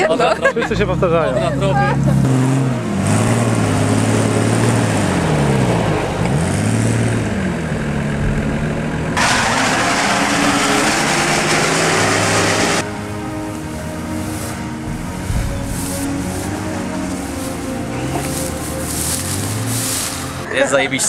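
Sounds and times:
engine revving: 0.8s - 13.1s, 13.7s - 20.5s.

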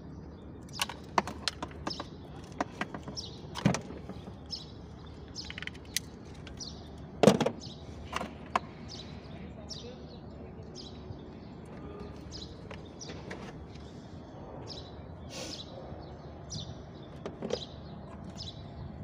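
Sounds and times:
connectors tapping on plastic: 0.7s - 8.7s.

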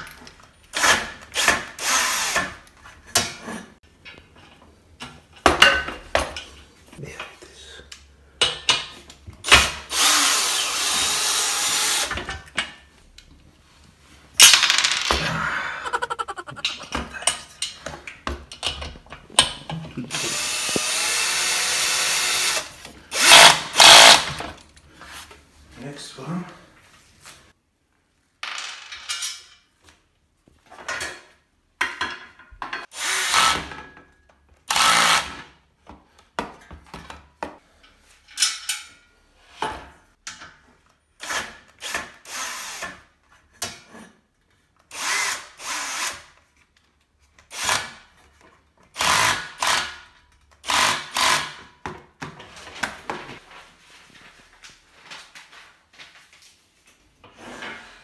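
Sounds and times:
cordless drill driving screws: 9.8s - 12.2s, 20.1s - 24.3s, 50.6s - 51.5s.

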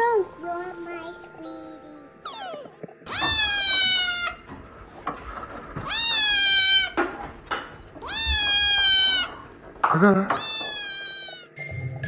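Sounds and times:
cat meowing loudly: 3.1s - 4.4s, 5.8s - 7.0s, 8.0s - 9.4s, 10.3s - 11.6s.

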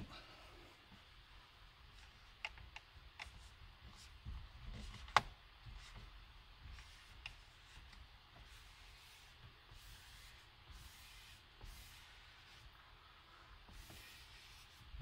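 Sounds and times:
squeegee rubbing on screen: 3.2s - 15.0s.

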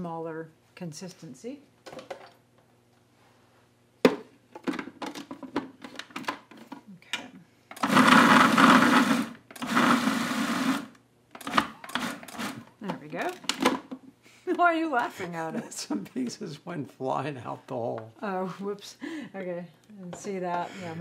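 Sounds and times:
food processor motor whirring: 7.7s - 12.7s.

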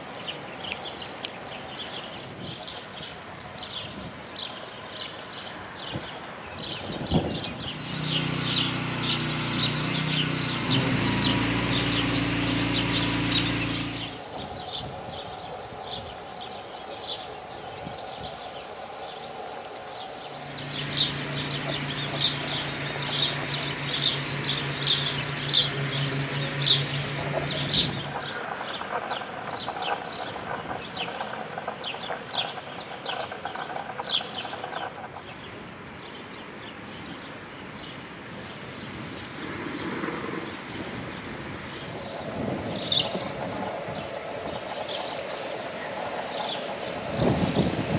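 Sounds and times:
small birds chirping: 0.0s - 47.9s
low engine hum: 6.1s - 15.2s, 19.4s - 47.9s.

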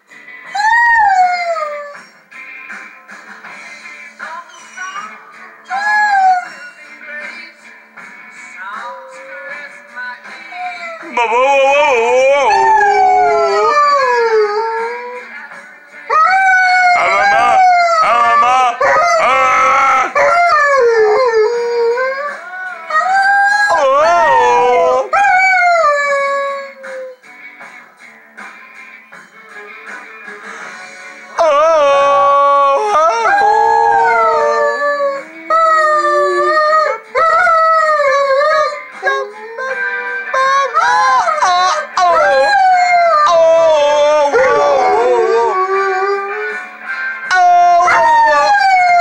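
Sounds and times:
dog howling: 10.8s - 15.2s, 16.1s - 27.1s, 31.4s - 46.6s, 47.3s - 49.0s.

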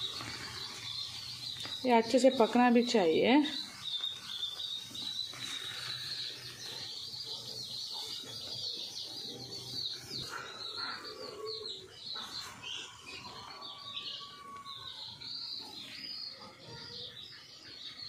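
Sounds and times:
birds chirping: 0.0s - 18.0s.

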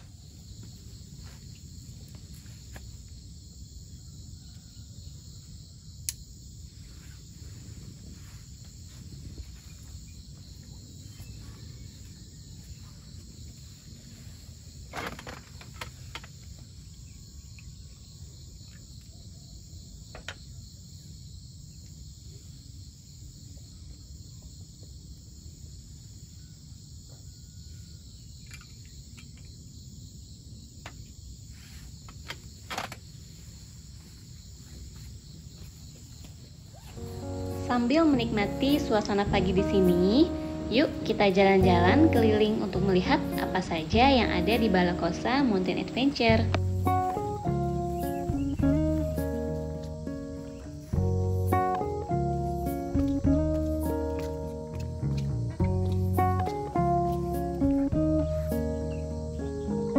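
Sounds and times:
insects trilling: 0.0s - 59.9s
low outdoor rumble: 37.1s - 51.5s.

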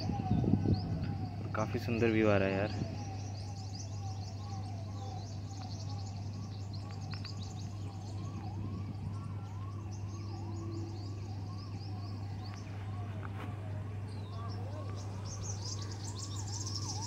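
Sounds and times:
high bird chirps: 14.1s - 17.0s
bird rising-and-falling call: 14.2s - 17.0s.

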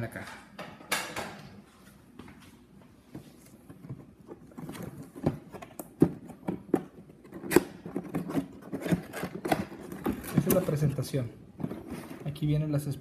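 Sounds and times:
cardboard box rustling: 4.0s - 12.5s.

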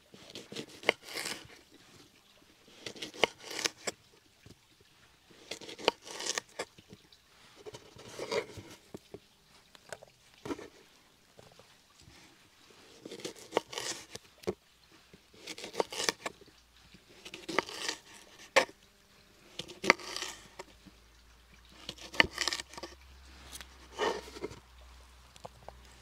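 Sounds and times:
knife cutting and scraping food: 0.1s - 4.0s, 5.3s - 7.0s, 7.6s - 9.2s, 12.7s - 14.6s, 15.2s - 18.8s, 19.4s - 21.0s, 21.7s - 24.6s.

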